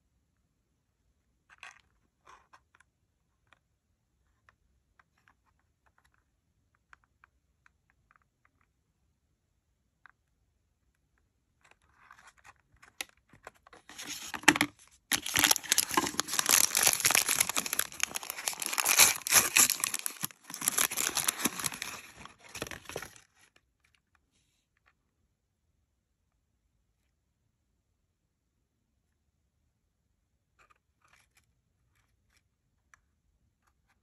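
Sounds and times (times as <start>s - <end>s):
paper wrapping crinkling: 13.7s - 23.4s
packaging tearing: 13.9s - 23.2s.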